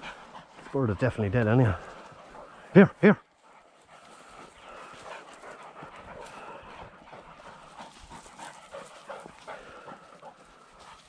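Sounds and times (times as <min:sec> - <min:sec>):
dog panting: 0:00.0 - 0:11.0.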